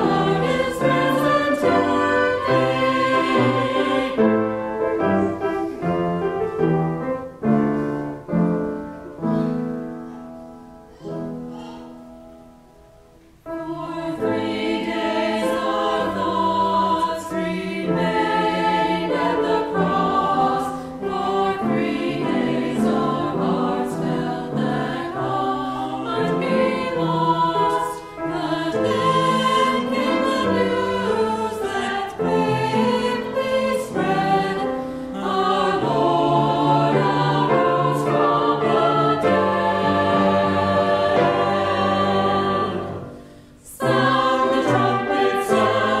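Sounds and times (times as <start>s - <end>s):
church choir singing: 0.0s - 46.0s
piano chords: 0.0s - 46.0s.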